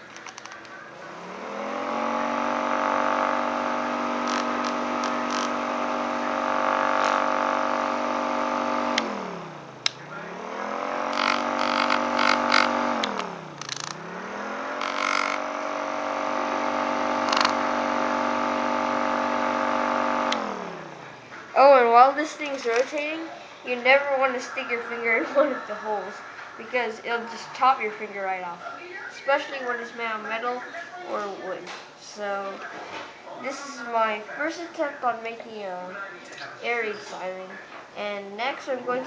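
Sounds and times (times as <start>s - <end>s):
clicks: 0.0s - 0.8s, 11.1s - 14.1s, 20.3s - 20.5s
air raid siren wailing: 0.9s - 21.2s.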